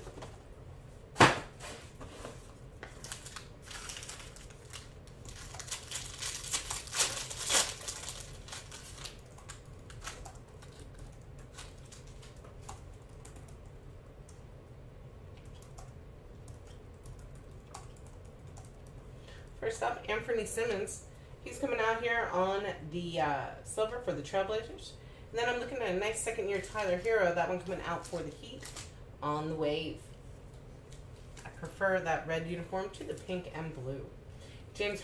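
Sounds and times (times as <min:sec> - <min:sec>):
foil wrapper crinkling: 0:02.9 - 0:12.7, 0:28.0 - 0:28.9
foil card pack tearing: 0:03.0 - 0:10.9.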